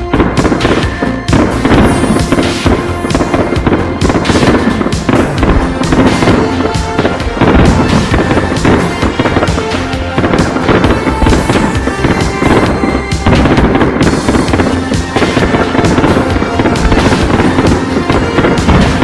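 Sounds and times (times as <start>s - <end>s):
fireworks launching and bursting: 0.0s - 19.0s.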